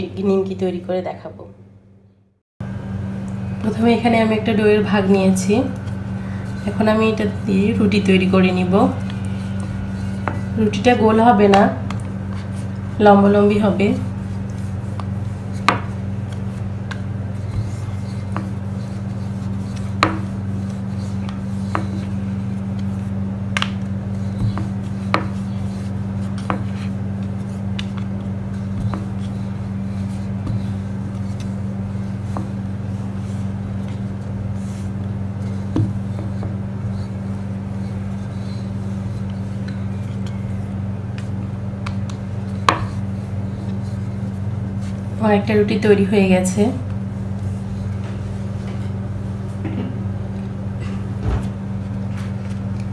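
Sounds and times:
steady low hum: 0.0 - 52.9
rolling pin rolling dough: 3.6 - 45.8
rolling pin knocking board: 19.9 - 20.3.

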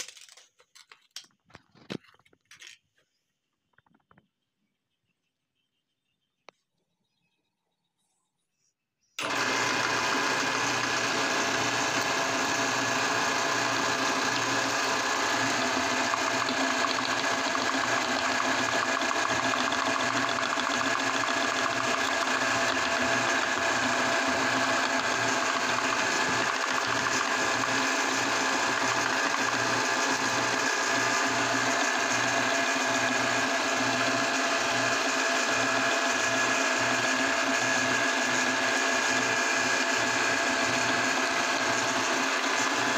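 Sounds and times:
meat grinder whirring: 9.2 - 42.9.

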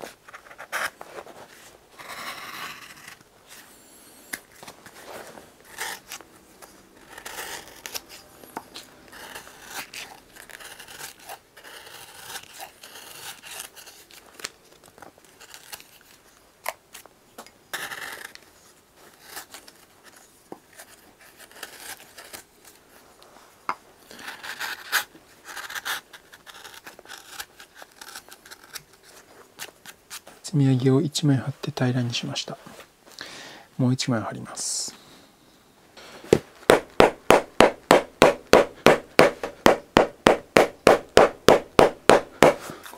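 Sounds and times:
knife slicing leather: 7.0 - 8.2, 36.3 - 42.8.

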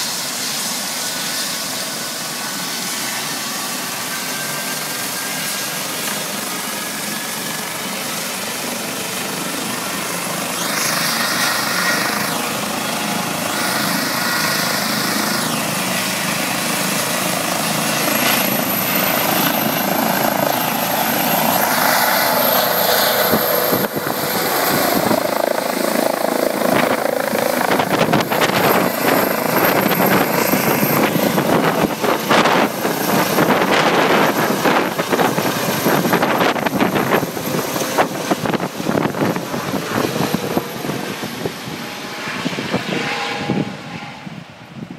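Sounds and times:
helicopter rotor noise: 0.0 - 44.9
helicopter turbine whine: 0.0 - 44.9
higher whine: 9.6 - 44.9.

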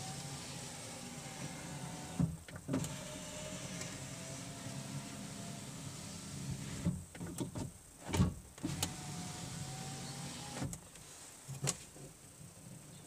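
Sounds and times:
power window motor running: 0.0 - 6.9, 8.6 - 10.7.

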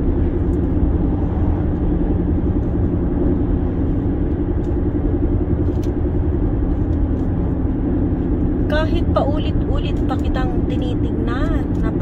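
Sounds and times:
car road and engine noise: 0.0 - 12.0.

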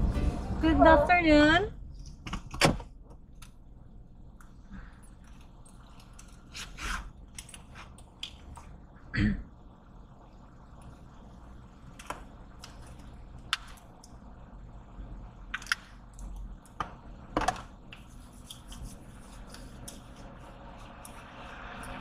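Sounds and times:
car cabin low hum: 0.0 - 1.9.

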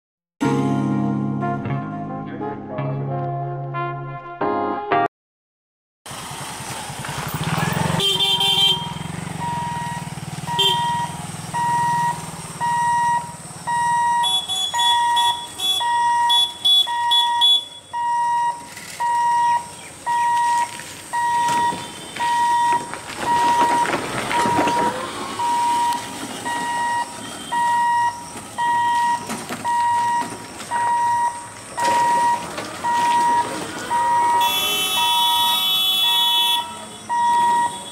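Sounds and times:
motorcycle passing: 6.1 - 15.5, 19.4 - 28.1
crossing warning hooter beeping: 7.7 - 37.9.

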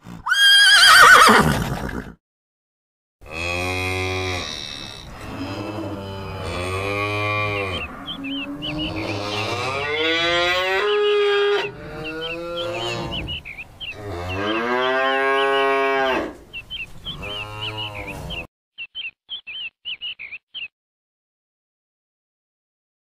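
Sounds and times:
cow mooing: 3.2 - 13.4, 14.0 - 16.4, 17.1 - 18.5
small birds chirping: 7.5 - 10.4, 11.6 - 15.7, 16.5 - 20.7.

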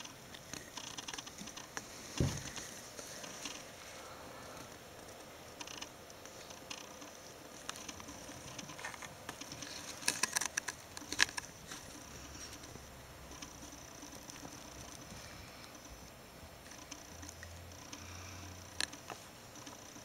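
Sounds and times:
sharp clicks and scratching: 0.0 - 3.7, 4.6 - 20.0
rats scrabbling over bedding: 0.0 - 15.9
faint steady hiss: 0.0 - 20.0.

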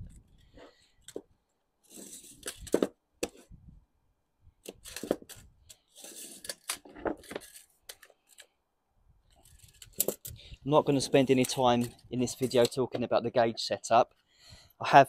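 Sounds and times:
tape measure rattling and scraping: 1.9 - 2.9, 4.7 - 8.5, 9.3 - 12.8.

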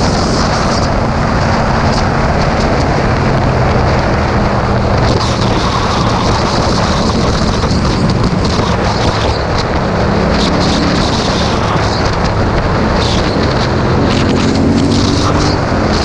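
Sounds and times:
motorcycle engine hum: 0.0 - 16.0
wind rush on microphone: 0.0 - 16.0.

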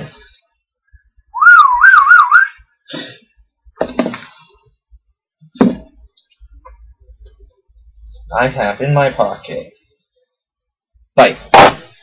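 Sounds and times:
man whistling a warbling note: 1.4 - 2.6.

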